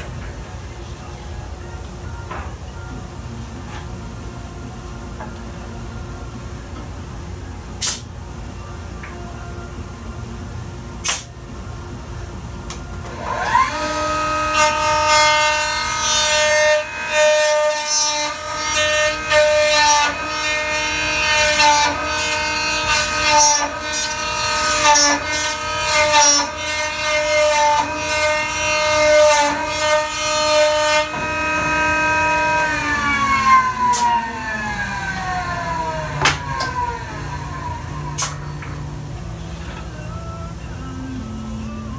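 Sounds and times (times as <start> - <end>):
router motor whining: 13.1 - 15.2, 28.8 - 38.4
router bit cutting wood: 13.1 - 38.4.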